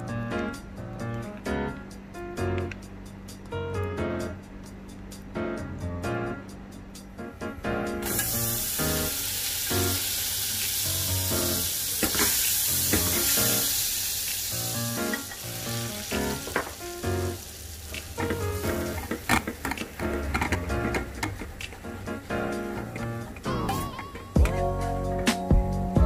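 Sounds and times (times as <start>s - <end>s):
butter sizzling in a pan: 8.0s - 23.2s.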